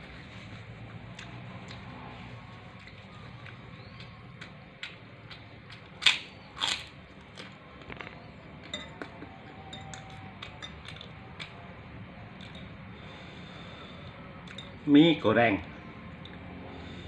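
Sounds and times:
low steady hum: 0.0 - 17.0
cutlery clinking on plate: 8.6 - 11.5.

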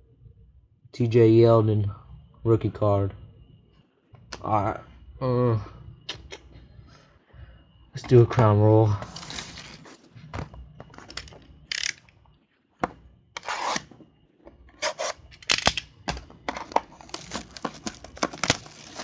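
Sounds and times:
plastic wrap crinkling and tearing: 17.0 - 19.0.

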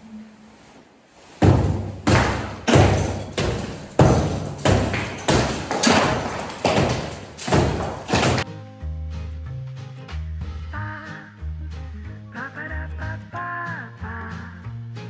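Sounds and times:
hammer thudding on plaster ceiling: 1.4 - 8.5.

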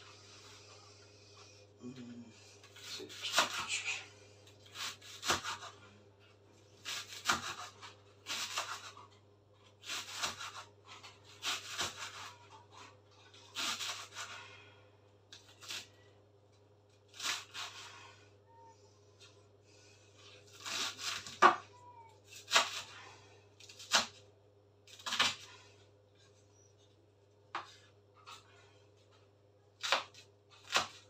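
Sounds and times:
knife slicing leeks: 2.7 - 3.7, 4.6 - 5.8, 6.8 - 9.1, 9.8 - 14.4, 17.1 - 17.9, 20.5 - 21.6, 22.3 - 23.0, 23.6 - 24.2, 24.9 - 25.5, 29.8 - 31.0.

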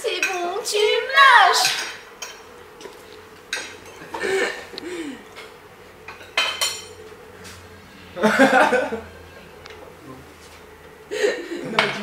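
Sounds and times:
faint steady hum: 0.0 - 12.0
pots and pans clattering: 6.1 - 7.0, 11.6 - 12.0.

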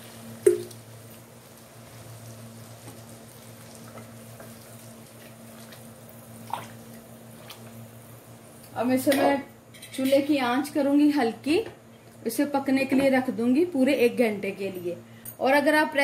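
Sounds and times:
curry bubbling: 0.0 - 8.0
steady low hum: 0.0 - 16.0.

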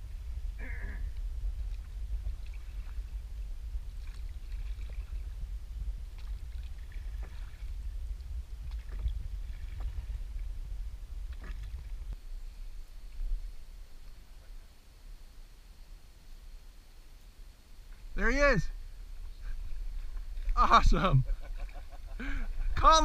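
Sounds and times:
low rumble: 0.0 - 15.3
oars knocking in oarlocks: 11.2 - 12.1.

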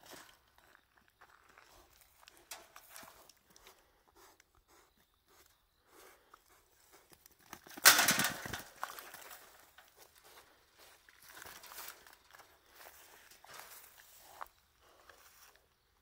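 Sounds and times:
boar rustling in trap: 2.1 - 3.6, 6.8 - 10.3, 11.1 - 14.4.

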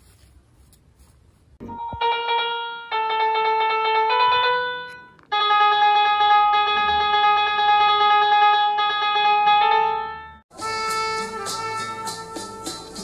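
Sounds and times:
piano notes from phone app: 1.6 - 10.8.

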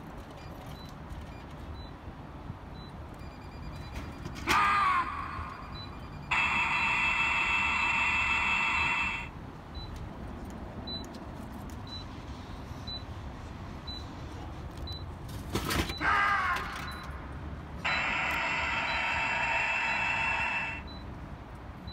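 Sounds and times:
faint beeps: 2.7 - 4.4, 5.1 - 10.0, 16.7 - 21.2
electronic sound effect: 6.3 - 9.3, 17.9 - 20.9.

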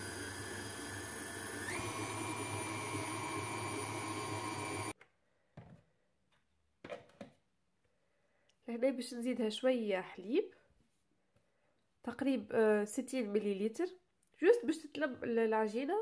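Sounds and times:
stand mixer motor whine: 0.0 - 5.0.

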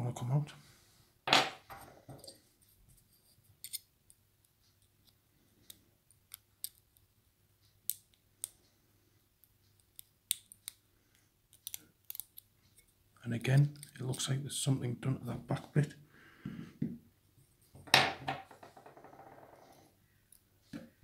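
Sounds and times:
lock pick metallic clicks: 11.5 - 12.5.

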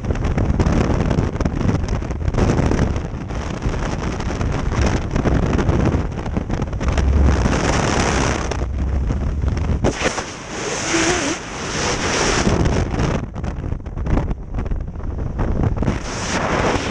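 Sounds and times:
wind buffeting microphone: 0.0 - 16.9.

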